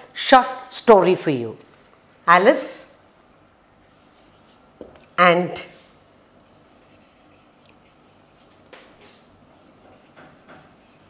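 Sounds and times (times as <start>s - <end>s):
marker pen on whiteboard: 3.8s - 11.0s.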